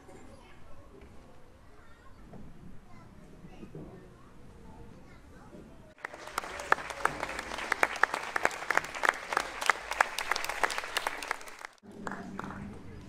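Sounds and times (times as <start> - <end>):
audience clapping: 6.0 - 13.0.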